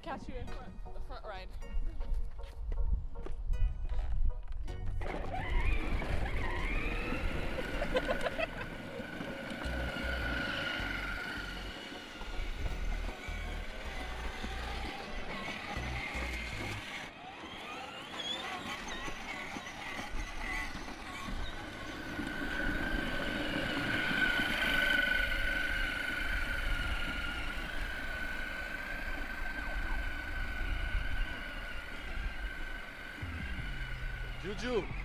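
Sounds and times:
electric motor whine: 5.0s - 35.0s
low rumble: 21.3s - 35.0s.

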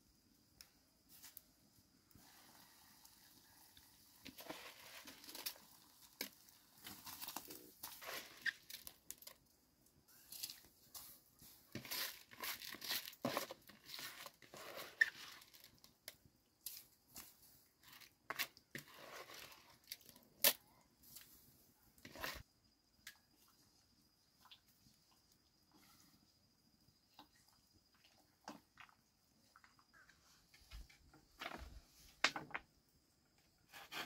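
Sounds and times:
rice rubbing and splashing in water: 2.2s - 9.3s, 10.4s - 15.8s, 17.2s - 20.2s, 22.0s - 22.5s.

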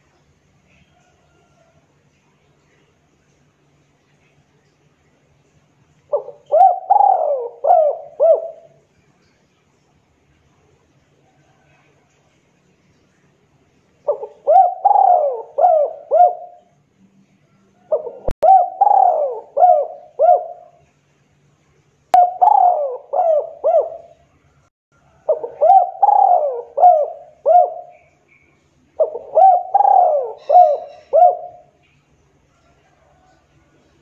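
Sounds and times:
dove cooing: 6.1s - 8.8s, 14.1s - 16.7s, 17.8s - 20.8s, 22.2s - 24.2s, 25.1s - 28.2s, 29.0s - 31.8s.

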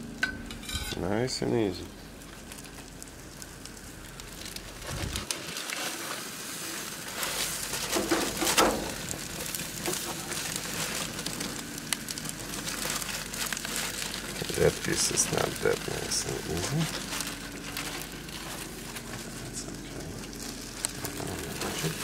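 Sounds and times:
fish sizzling on a grill: 0.0s - 22.0s
metal spatula scraping: 0.5s - 1.1s
foil crinkling: 1.1s - 22.0s.

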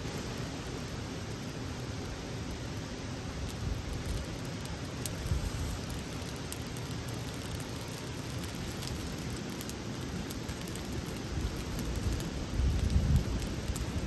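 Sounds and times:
campfire crackling: 0.0s - 14.0s.

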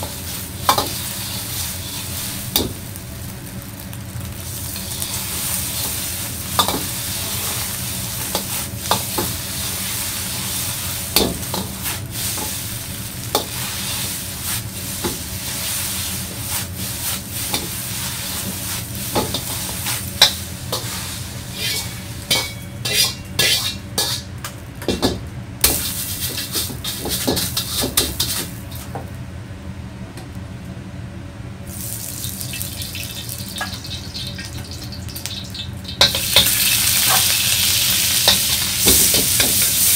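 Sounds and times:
eggs sizzling in hot oil: 0.0s - 24.4s, 31.7s - 39.9s
metal ladle scraping wok: 4.7s - 10.8s, 13.3s - 24.3s.

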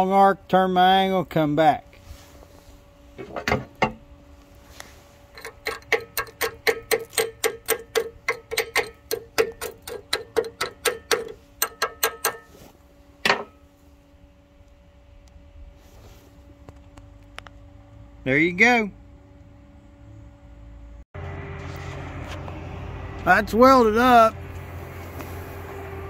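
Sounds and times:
chipping hammer tapping metal: 5.4s - 12.5s.

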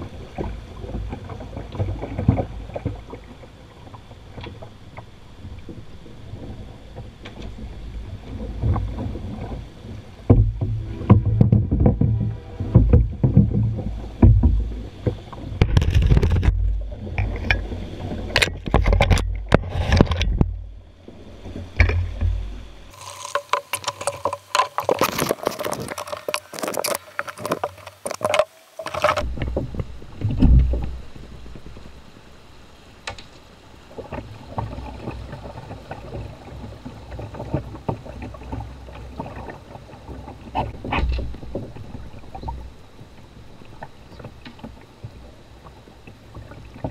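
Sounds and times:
river water running over rocks: 7.7s - 46.9s
canoe pole knocking and scraping: 10.3s - 20.6s, 21.8s - 30.8s.

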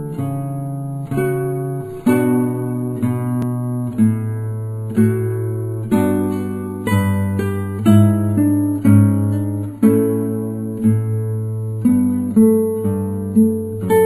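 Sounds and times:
strummed acoustic guitar music: 0.0s - 14.0s.

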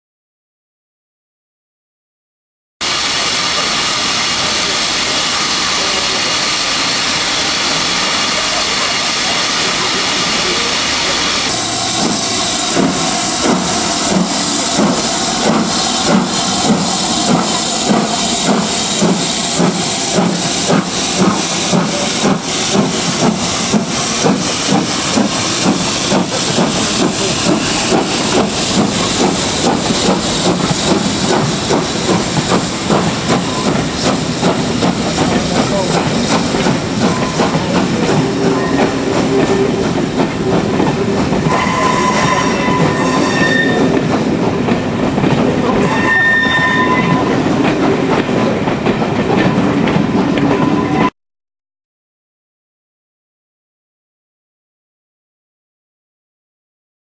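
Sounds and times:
steam hissing: 2.8s - 48.1s
steam locomotive exhaust chuffs: 2.8s - 50.9s.

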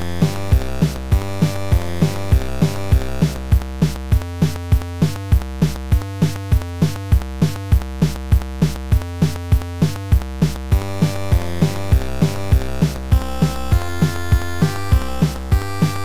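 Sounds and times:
synthesizer chords: 0.0s - 4.0s, 10.7s - 16.0s
drum machine beat: 0.0s - 16.0s.

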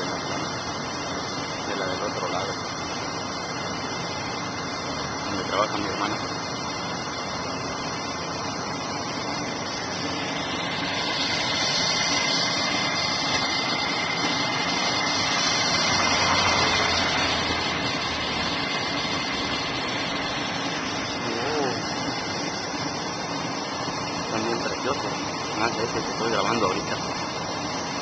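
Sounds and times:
faint steady whine: 0.0s - 28.0s
road vehicle noise: 9.2s - 21.7s.

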